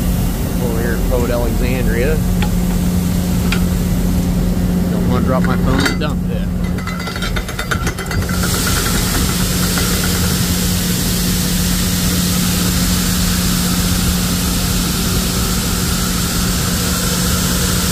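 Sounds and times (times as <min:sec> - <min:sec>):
low engine hum: 0:00.0 - 0:17.9
grain pouring: 0:08.2 - 0:17.9.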